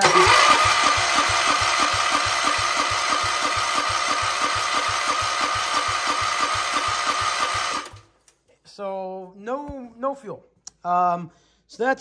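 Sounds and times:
engine cranking without starting: 0.0 - 8.1.

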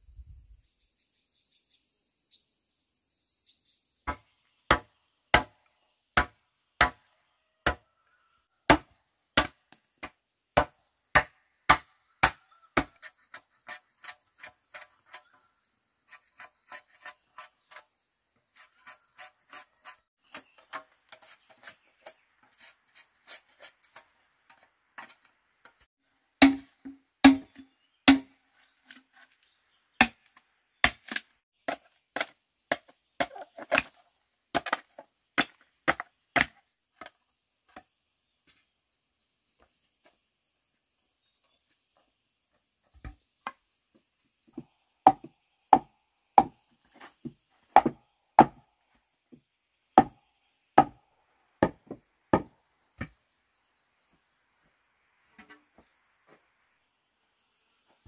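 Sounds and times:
machete chopping bamboo: 4.1 - 5.6, 6.2 - 7.0, 7.6 - 7.8, 8.7 - 13.3, 26.4 - 28.3, 30.0 - 36.6, 45.1 - 46.6, 47.8 - 48.6, 50.0 - 50.2, 50.8 - 51.0.

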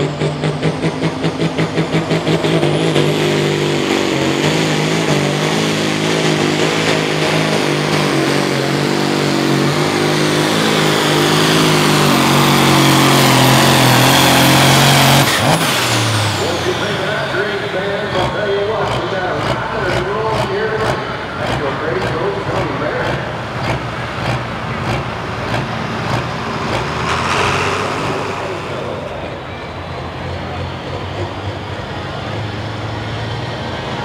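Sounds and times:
tractor engine at full throttle: 0.0 - 34.0
high whine: 25.2 - 30.6.

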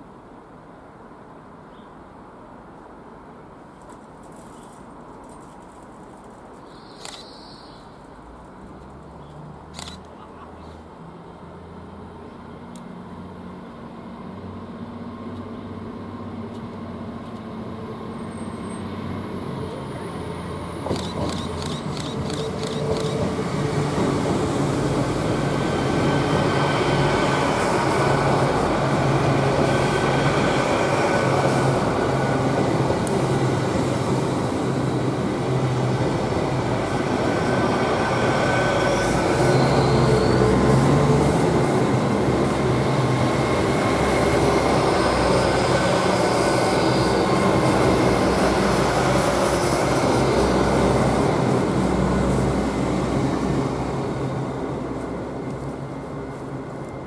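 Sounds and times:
diesel train passing: 10.4 - 57.0
train wheel squeals: 38.2 - 41.3, 44.8 - 48.3.

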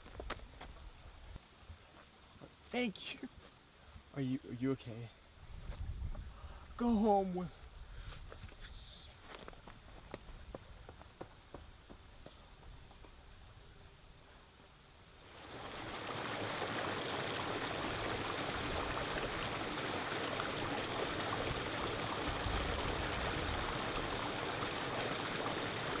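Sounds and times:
rush of running water: 15.2 - 26.0.

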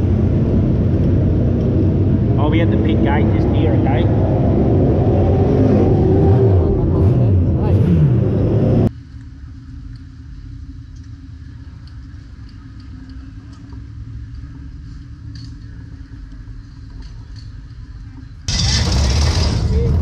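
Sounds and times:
loud engine cutting off: 0.0 - 8.9, 18.5 - 20.0
low engine rumble: 0.0 - 20.0.

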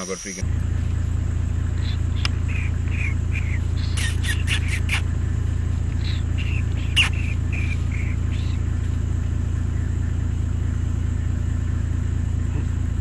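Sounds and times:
vehicle engine idling: 0.0 - 13.0
squeaky falling calls: 1.7 - 5.2, 5.8 - 10.4.

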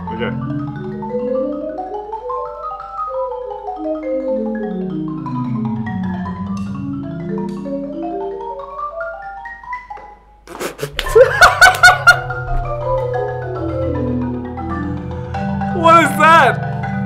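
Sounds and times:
marimba fast mallet runs: 11.4 - 17.0.

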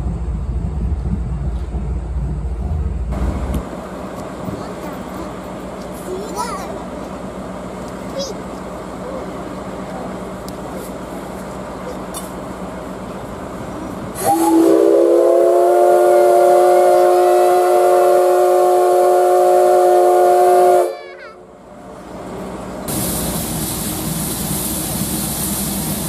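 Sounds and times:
steam whistle blast: 14.2 - 21.0.

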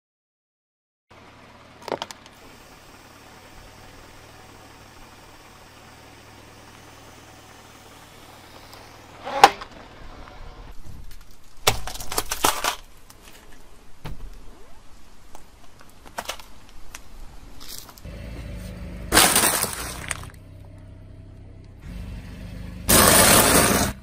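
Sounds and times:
low engine hum: 1.1 - 10.9, 17.2 - 24.0
tyre crushing small objects: 10.8 - 13.7, 15.3 - 18.1, 19.1 - 20.4.

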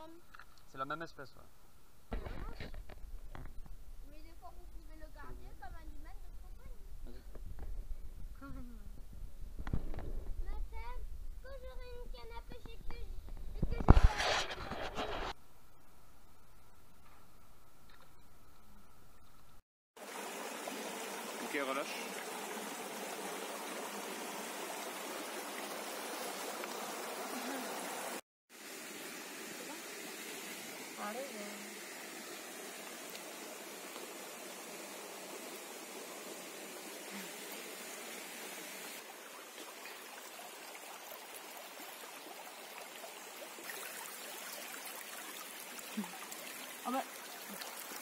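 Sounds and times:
river flowing over stones: 20.0 - 48.0.

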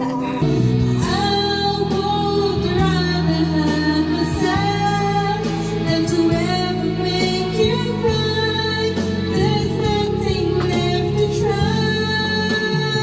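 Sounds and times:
backing track on speaker: 0.0 - 13.0
woman singing karaoke: 0.0 - 13.0.

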